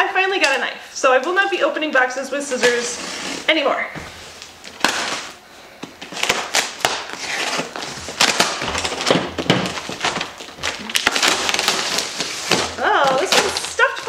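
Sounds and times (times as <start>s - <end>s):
cardboard scraping and crinkling: 2.4s - 5.4s, 6.1s - 14.0s
packing tape tearing: 4.3s - 14.0s.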